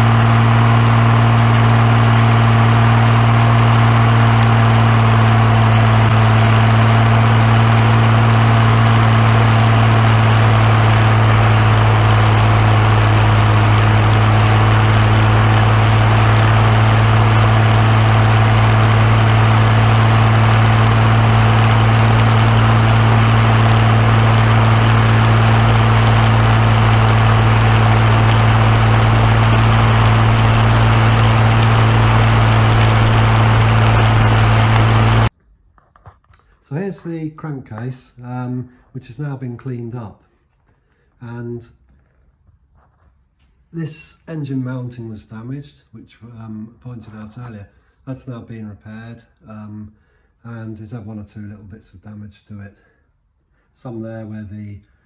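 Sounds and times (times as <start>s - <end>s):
aero engine idling drone: 0.0s - 35.3s.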